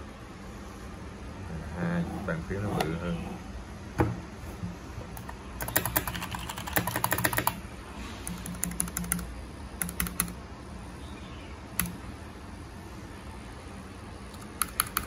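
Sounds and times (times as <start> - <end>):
mechanical keyboard typing: 5.2 - 7.6, 8.2 - 10.4, 14.3 - 15.0.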